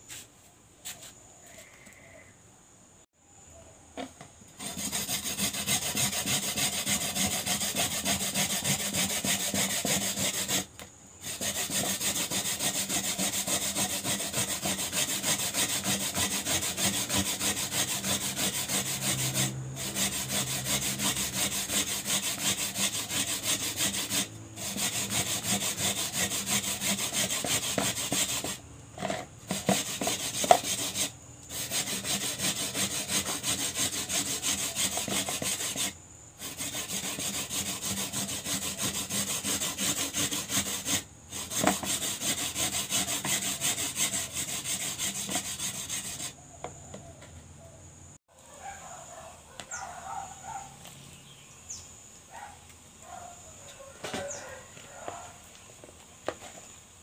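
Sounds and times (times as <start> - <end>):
coconut rasping on metal grater: 4.6 - 46.4.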